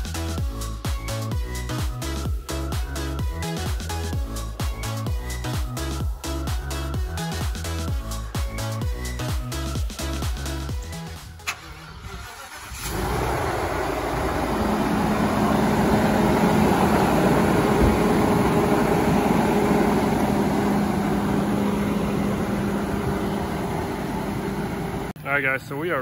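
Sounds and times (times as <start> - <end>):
engine starting and idling: 10.8 - 25.2.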